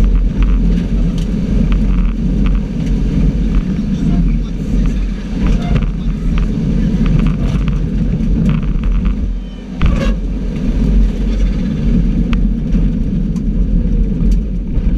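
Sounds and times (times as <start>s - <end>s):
rally car engine running hard: 0.0s - 14.9s.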